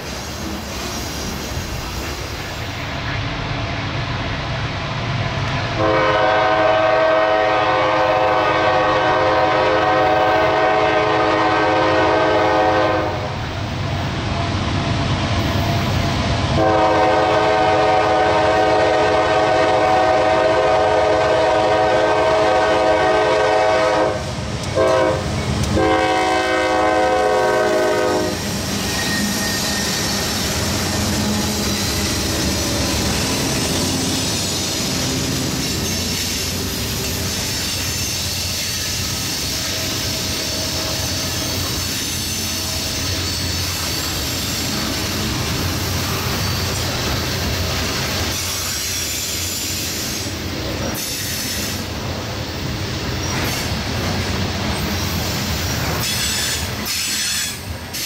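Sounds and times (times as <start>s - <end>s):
train wheels on rails: 0.0s - 58.0s
train horn blasts: 5.8s - 13.5s, 16.6s - 32.2s.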